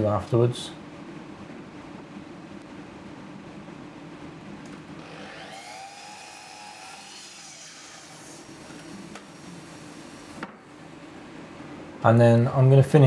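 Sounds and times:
mitre saw whining: 0:05.0 - 0:10.4.

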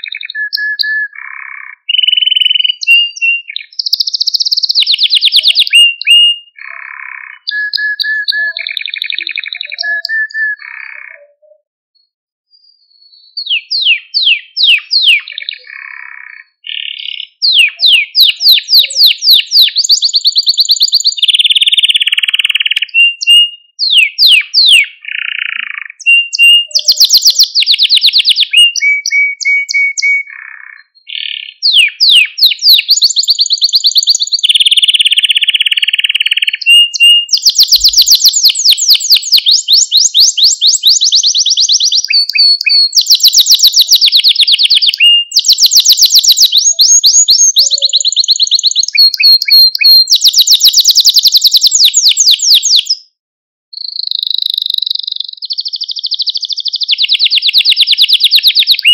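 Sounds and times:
canary singing trills: 0:00.0 - 0:58.9.

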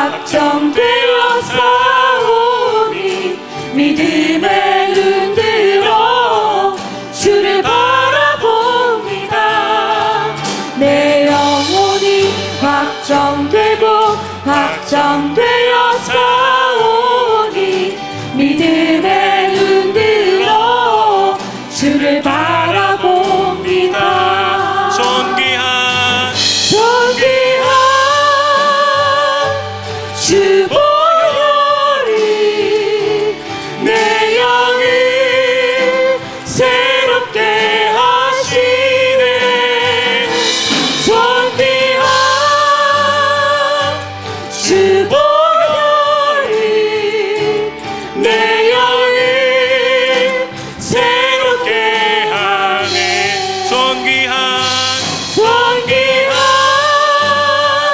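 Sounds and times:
acoustic guitar: 0:00.0 - 0:57.9
choir singing in harmony: 0:00.0 - 0:57.9.

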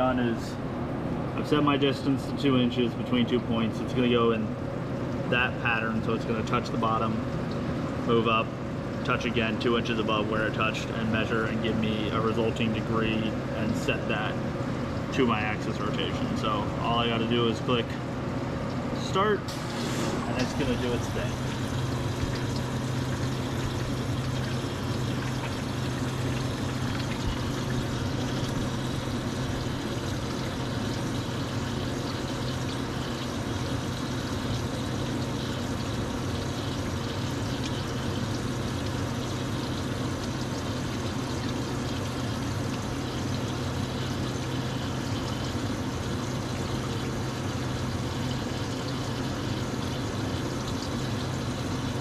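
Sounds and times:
low machine hum: 0:00.0 - 0:52.0
water trickling: 0:19.6 - 0:52.0.

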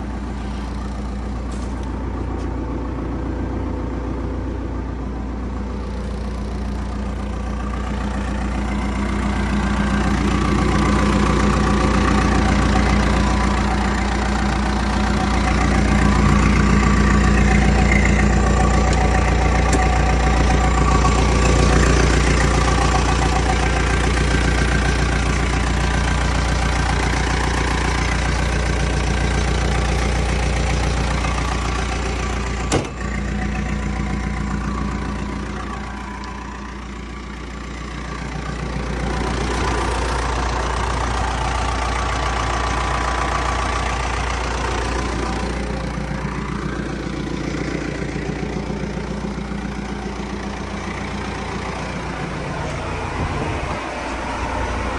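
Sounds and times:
diesel engine idling: 0:00.0 - 0:54.9.

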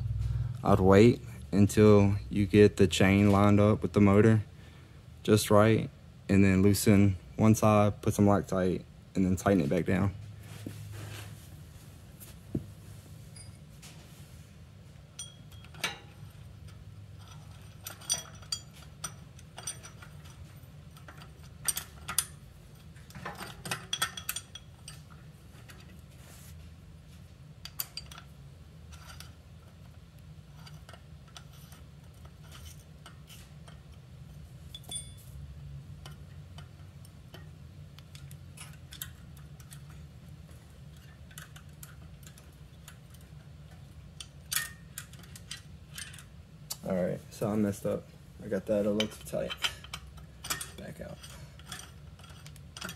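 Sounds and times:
steady low hum: 0:00.0 - 0:52.9
small metal parts clinking: 0:15.1 - 0:26.0, 0:34.6 - 0:35.4, 0:48.9 - 0:52.9.

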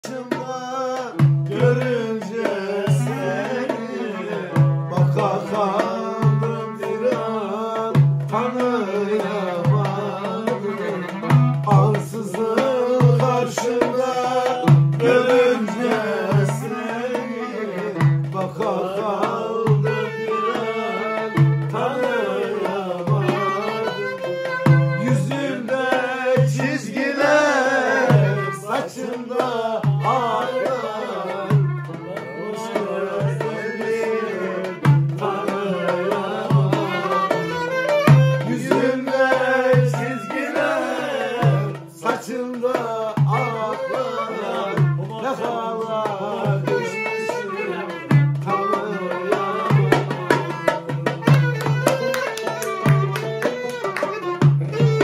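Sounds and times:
low drum beat: 0:01.0 - 0:03.7, 0:21.3 - 0:28.6, 0:49.6 - 0:52.2
clarinet melody: 0:23.4 - 0:25.2, 0:46.7 - 0:55.0.

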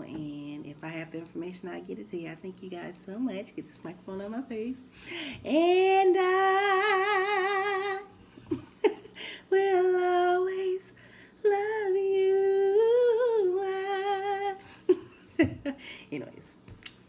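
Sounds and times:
woman singing with vibrato: 0:04.0 - 0:08.2, 0:08.8 - 0:15.0.

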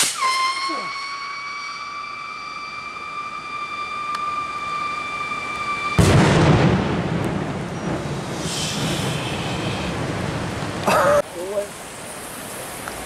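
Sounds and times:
loud bang: 0:00.0 - 0:00.5, 0:05.8 - 0:09.9
whistle rocket whistling: 0:00.0 - 0:06.9, 0:07.6 - 0:10.0.

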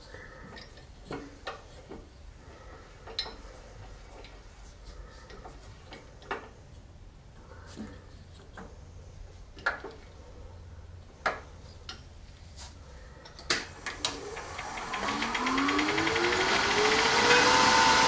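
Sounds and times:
wood lathe motor whine: 0:13.6 - 0:18.0.

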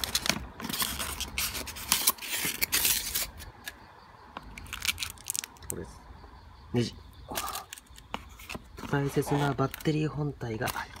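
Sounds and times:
cardboard scraping and rustling: 0:00.0 - 0:03.4, 0:08.1 - 0:10.0.

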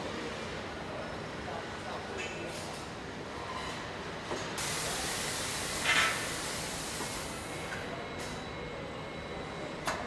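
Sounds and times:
steady factory hiss: 0:04.4 - 0:08.4.

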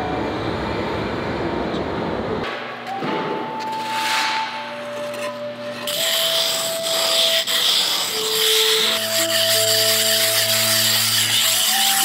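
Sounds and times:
slow background music: 0:02.5 - 0:07.4
hand rubbing sand: 0:04.0 - 0:12.0.

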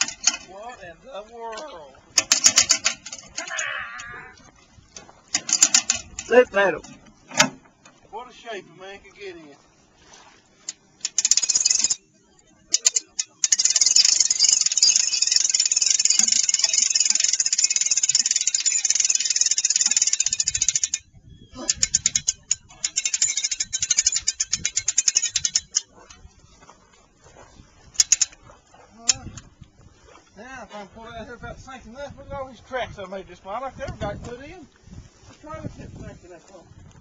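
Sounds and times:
winch ratchet clicking: 0:05.3 - 0:06.4, 0:10.7 - 0:12.0, 0:12.7 - 0:25.9, 0:28.0 - 0:28.4.

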